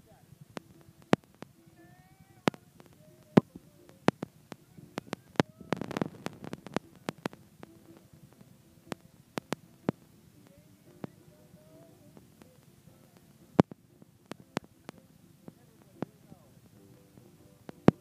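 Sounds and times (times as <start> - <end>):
crackle burst: 2.2 - 11.2.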